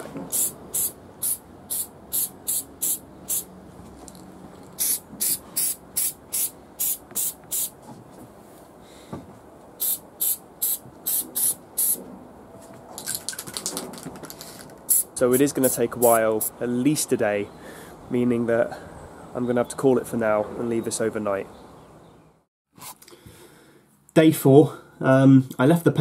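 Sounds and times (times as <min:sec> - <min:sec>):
spray paint can hissing: 0:00.3 - 0:03.5, 0:04.8 - 0:07.8, 0:09.8 - 0:12.0, 0:13.6 - 0:16.5.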